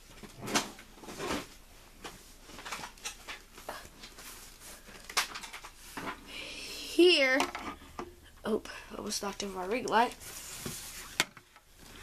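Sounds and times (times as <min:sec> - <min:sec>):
toy handling knocks and rustles: 0:00.1 - 0:06.2, 0:07.3 - 0:07.8.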